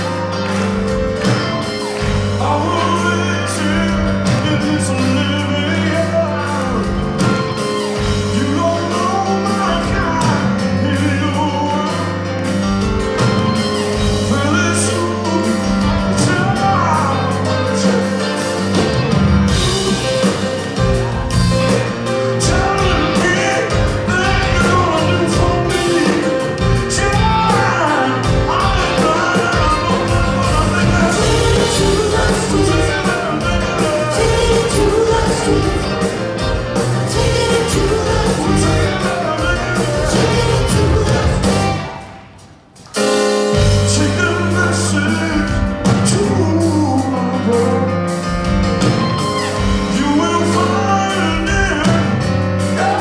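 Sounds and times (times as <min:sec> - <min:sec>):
electric guitars: 0:00.0 - 0:10.8
electric bass: 0:00.0 - 0:42.0
person singing: 0:00.0 - 0:42.3, 0:43.6 - 0:53.0
drums: 0:00.0 - 0:53.0
grand piano: 0:00.0 - 0:53.0.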